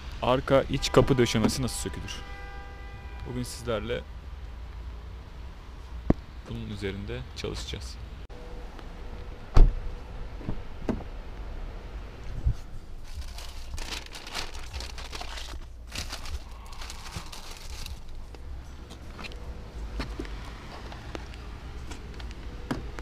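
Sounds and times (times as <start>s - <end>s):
plastic bag crinkling: 13.0s - 18.2s.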